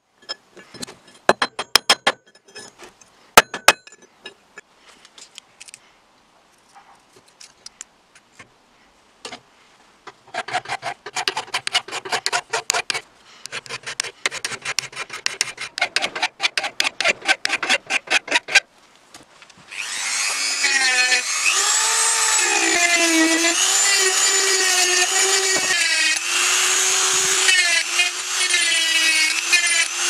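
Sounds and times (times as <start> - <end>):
hand file filing steel: 10.3 - 18.6.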